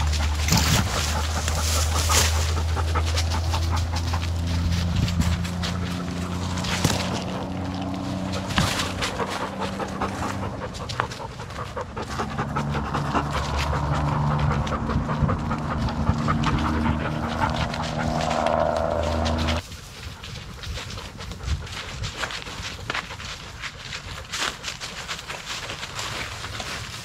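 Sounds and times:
low drone: 0.0 - 19.6
dog panting: 0.0 - 24.1.

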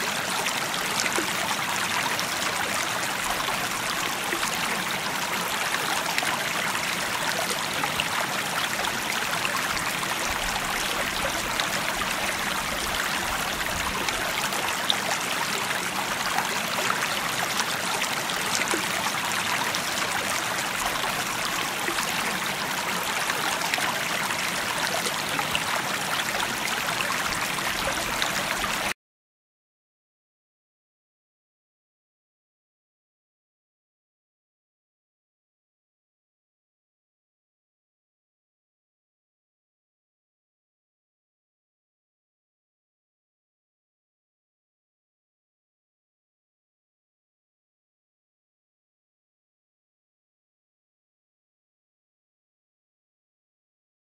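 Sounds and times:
stream water flowing: 0.0 - 29.0.

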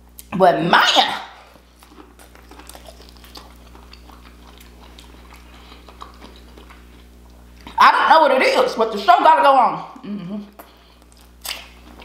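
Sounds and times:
low electrical hum: 0.0 - 12.0
chewing food: 1.3 - 7.8, 10.5 - 12.0.

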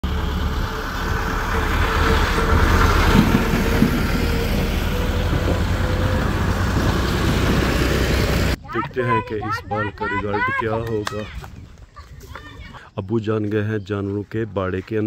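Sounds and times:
motor vehicle rumble: 0.0 - 8.6.

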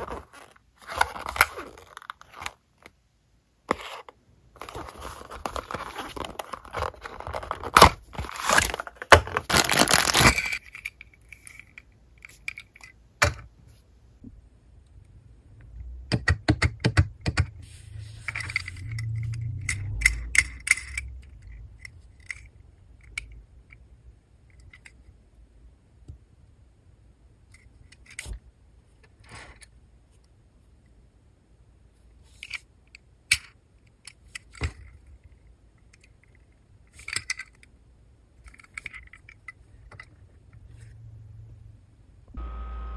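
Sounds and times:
cardboard box rustling and scraping: 3.7 - 10.4
low rumble: 17.7 - 22.0.

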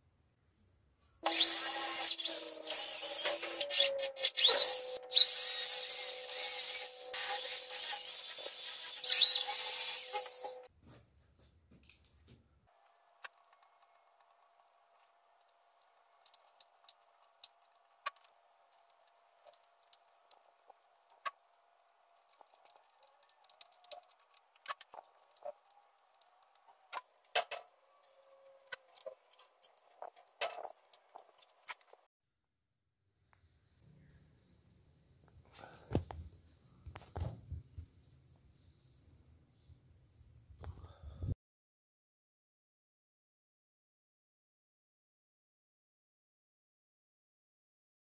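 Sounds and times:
electric drill boring into wood: 1.2 - 10.7.

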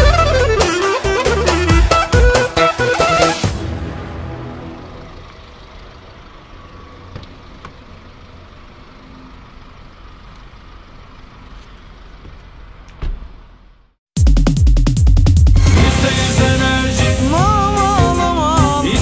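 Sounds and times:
loud electronic music: 0.0 - 5.0, 14.2 - 19.0.

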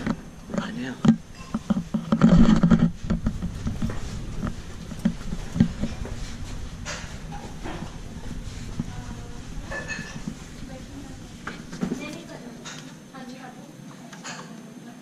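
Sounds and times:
rustle and bump: 0.0 - 12.8
footsteps on carpet: 1.8 - 12.6.

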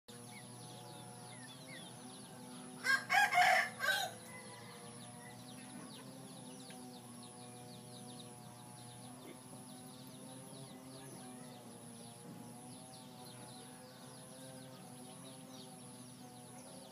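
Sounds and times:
small birds chirping: 0.1 - 16.9
rooster crowing: 2.8 - 5.6.

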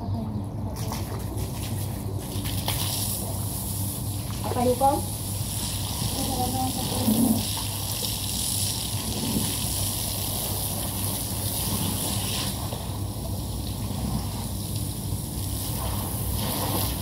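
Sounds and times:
low steady hum: 0.0 - 17.0
hose water splattering on carpet: 0.8 - 17.0.

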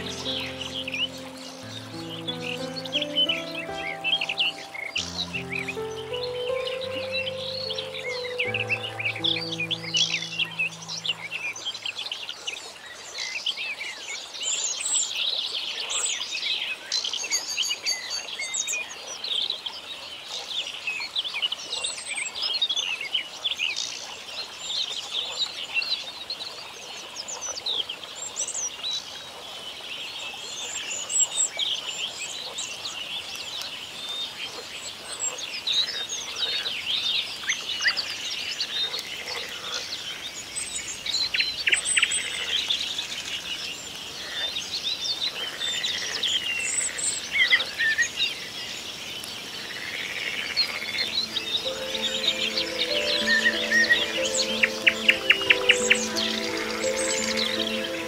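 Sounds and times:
songbirds chorus: 0.0 - 11.8, 39.8 - 58.0.

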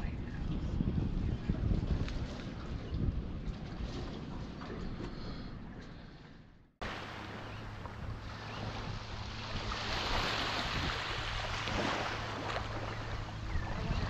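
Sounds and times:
wind on microphone: 0.0 - 5.7, 6.8 - 14.0
small ocean waves washing ashore: 6.8 - 14.0.

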